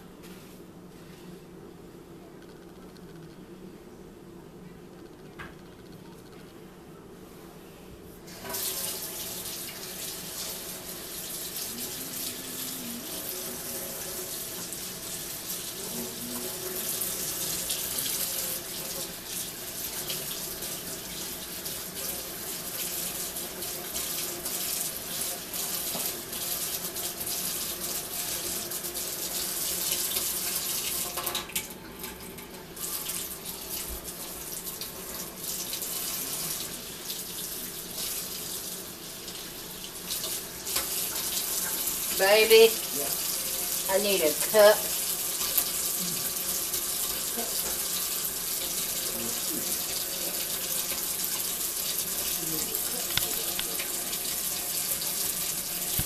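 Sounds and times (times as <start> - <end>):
faucet water splashing into sink: 15.5 - 56.0.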